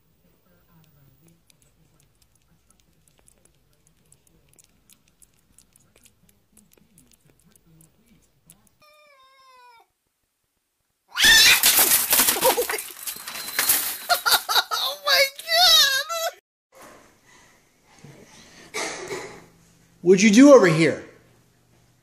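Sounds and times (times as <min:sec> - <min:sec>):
cat yowling: 0:08.8 - 0:09.9, 0:11.1 - 0:12.0
window blinds rattling: 0:11.5 - 0:14.6.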